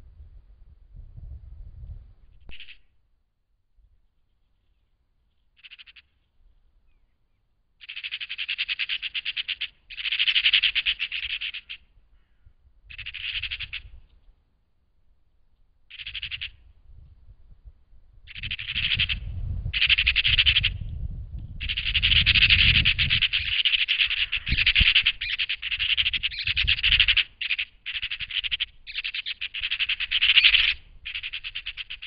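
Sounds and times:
magpies chattering: 2.5s - 2.8s, 5.6s - 6.1s, 7.8s - 13.9s, 15.9s - 16.6s, 18.3s - 20.8s, 21.6s - 32.0s.

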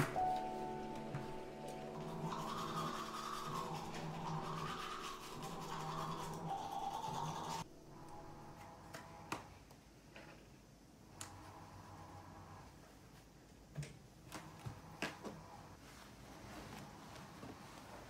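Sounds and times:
toothbrush scrubbing teeth: 1.9s - 7.6s.

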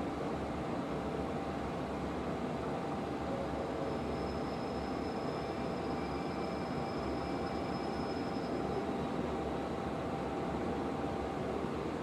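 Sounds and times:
thin high whine: 3.7s - 9.1s.

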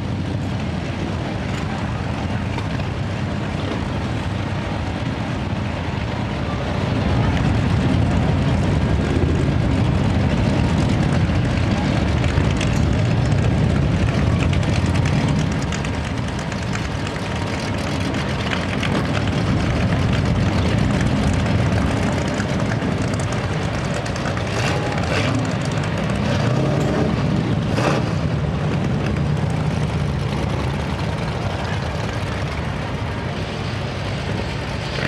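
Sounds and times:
propeller aircraft engine drone: 0.0s - 35.0s.

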